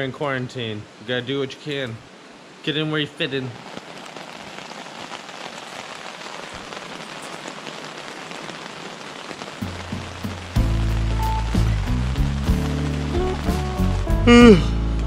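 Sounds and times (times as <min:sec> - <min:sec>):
rain on tent fabric: 0:00.0 - 0:15.0
low background music: 0:10.6 - 0:15.0.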